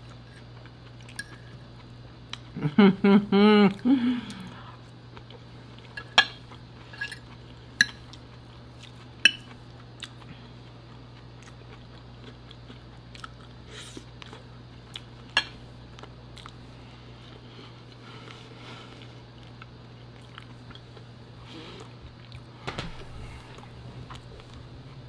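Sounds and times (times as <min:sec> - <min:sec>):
person chewing food: 0:00.0 - 0:02.6, 0:03.7 - 0:25.0
fork clinking on a plate: 0:09.3 - 0:09.5.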